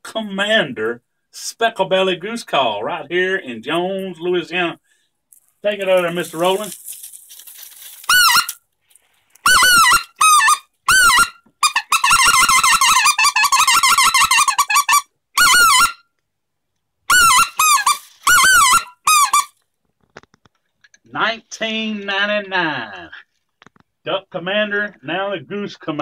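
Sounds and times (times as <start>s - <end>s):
goose call rapid chattering: 9.5s - 16.0s, 17.1s - 19.5s
goose call yelps: 9.5s - 16.0s, 17.1s - 19.5s.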